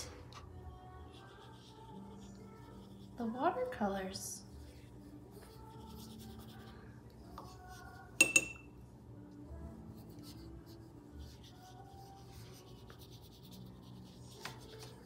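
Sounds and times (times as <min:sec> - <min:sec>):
paintbrush dabbing on paper: 0:00.8 - 0:08.1, 0:09.9 - 0:15.0.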